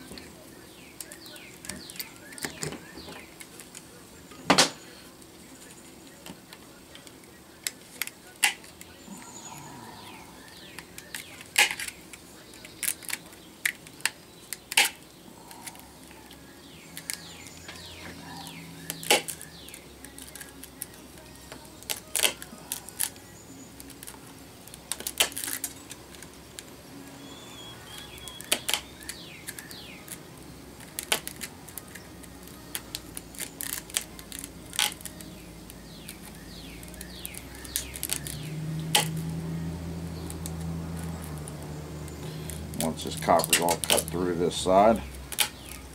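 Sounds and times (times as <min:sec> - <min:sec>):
snips cutting copper wire: 0:10.6 - 0:12.0, 0:12.6 - 0:15.0, 0:18.9 - 0:21.0, 0:21.8 - 0:23.2, 0:23.8 - 0:26.3, 0:28.4 - 0:30.2, 0:30.8 - 0:35.3, 0:35.9 - 0:39.3, 0:40.2 - 0:44.2, 0:45.0 - 0:45.8.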